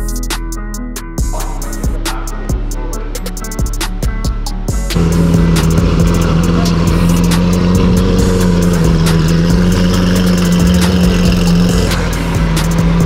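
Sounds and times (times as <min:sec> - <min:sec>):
car engine starting and idling: 0:04.9 - 0:13.0.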